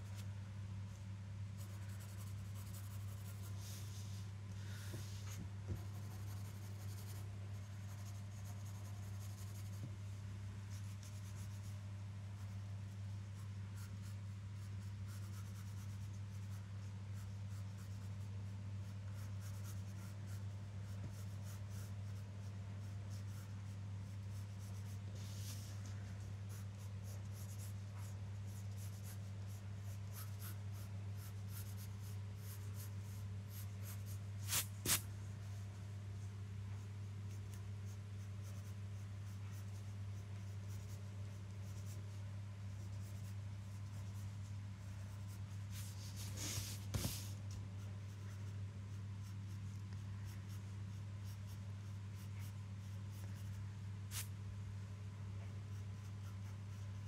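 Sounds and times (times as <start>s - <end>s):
steady low hum: 0.0s - 57.0s
pencil scratching on paper: 1.6s - 4.2s, 4.9s - 9.8s, 10.7s - 11.7s, 13.2s - 35.0s, 37.3s - 54.3s, 55.7s - 57.0s.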